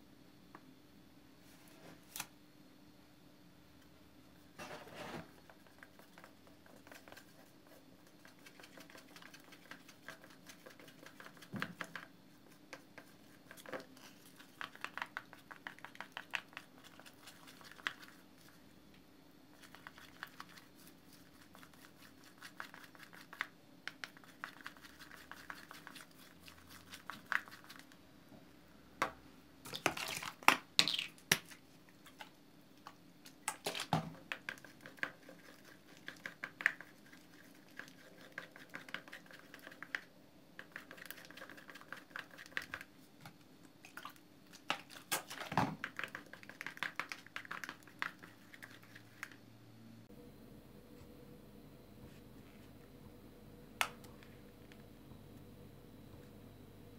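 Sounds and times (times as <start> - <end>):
slime stirred in a bowl: 4.6 - 18.9, 19.5 - 28.0, 29.6 - 49.4.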